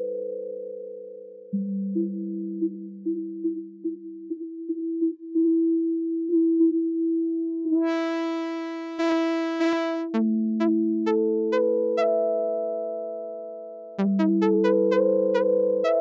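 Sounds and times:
synthesizer notes: 7.8s - 12.5s, 14.0s - 16.0s.

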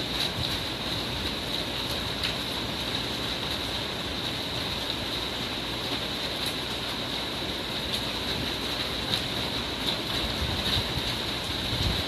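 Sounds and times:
heavy rain hissing: 0.0s - 12.0s
sharp ticks of raindrops: 0.0s - 12.0s.

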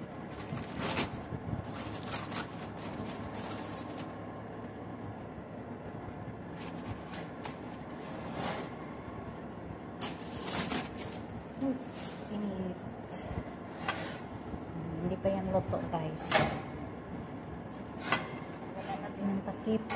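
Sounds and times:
rustling and handling of foil: 0.0s - 4.4s, 6.4s - 8.9s, 10.0s - 12.3s
oven fan humming: 0.0s - 19.9s.

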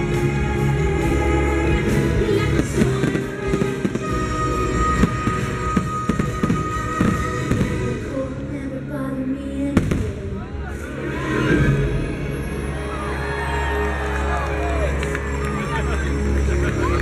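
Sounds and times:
loud music: 0.0s - 9.0s
fireworks popping and crackling: 2.4s - 8.0s.

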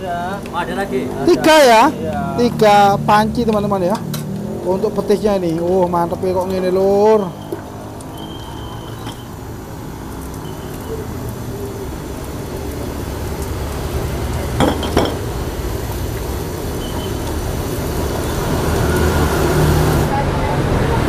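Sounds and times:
street traffic rumble: 0.0s - 21.0s.

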